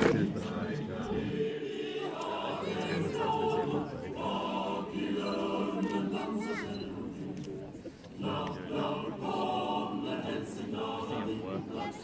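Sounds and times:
large choir singing: 0.0 - 12.0.

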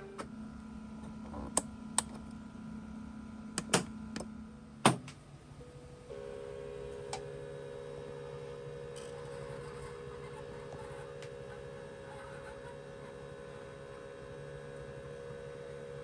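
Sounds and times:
push-button and latch clicks: 3.6 - 4.3
small electric motor humming: 6.1 - 16.0.

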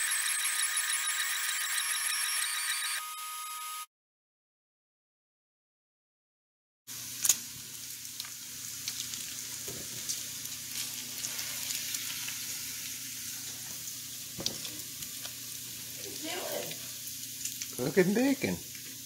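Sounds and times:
bacon sizzling in a frying pan: 6.9 - 19.0.

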